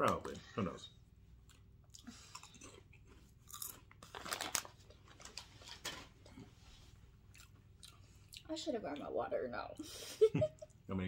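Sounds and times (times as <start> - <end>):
potato chips crunching: 2.4 - 5.8.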